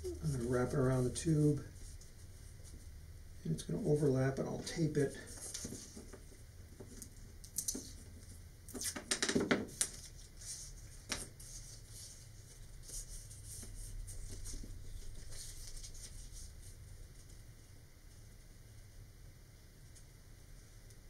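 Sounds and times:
paper rustling: 9.8 - 16.8.

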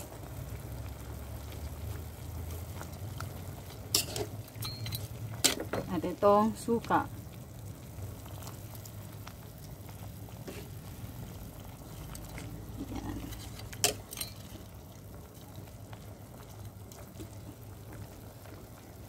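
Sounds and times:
metal spatula stirring: 3.9 - 5.8, 10.4 - 10.8, 12.3 - 14.6.

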